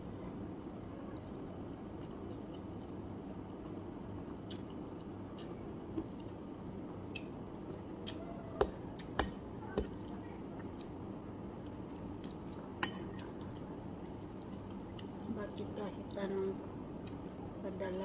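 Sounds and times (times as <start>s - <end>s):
steady low background noise: 0.0s - 18.0s
fork clinking against plate: 12.8s - 13.3s.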